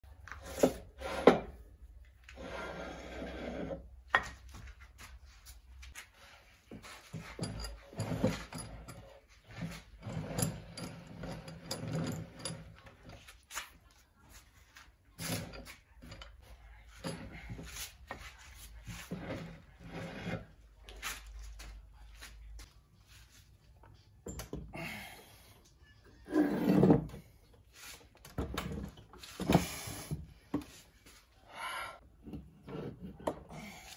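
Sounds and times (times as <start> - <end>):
metal set on wooden bench: 0.2 - 4.8, 5.4 - 14.0, 14.6 - 20.6, 26.2 - 30.8
steel scraping on steel: 2.4 - 3.9.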